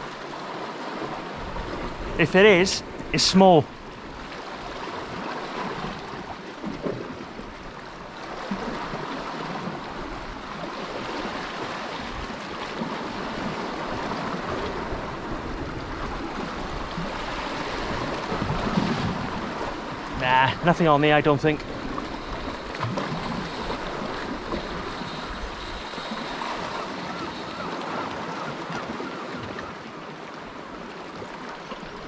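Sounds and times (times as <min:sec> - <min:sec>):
wind rumbling on microphone: 0:02.8 - 0:20.7
sea washing against rocks: 0:08.2 - 0:28.2.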